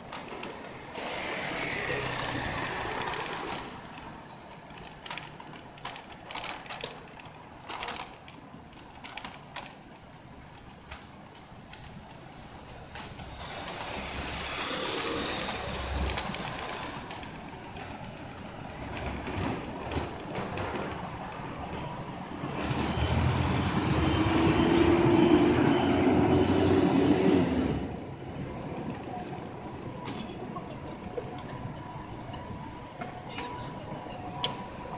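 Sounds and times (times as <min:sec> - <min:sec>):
cars and scooters passing: 0:00.6 - 0:04.2, 0:13.1 - 0:34.9.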